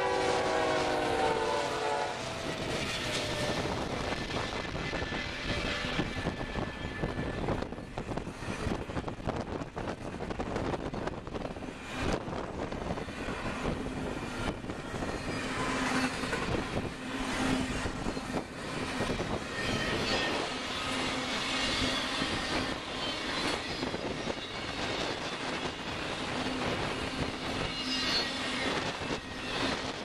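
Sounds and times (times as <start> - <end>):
train cars rumbling on rails: 0.0 - 30.0
faint high wheel squeal: 13.2 - 30.0.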